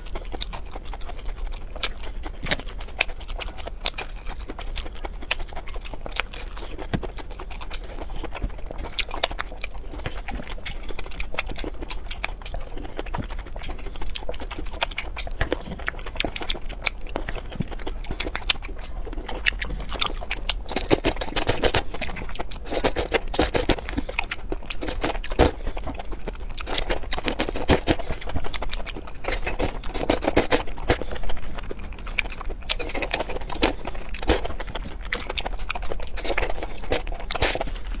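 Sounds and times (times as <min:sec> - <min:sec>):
crunching vegetables: 0:00.0 - 0:38.0
wet mouth smacking: 0:00.0 - 0:38.0
slurping food: 0:18.9 - 0:31.7, 0:32.4 - 0:38.0.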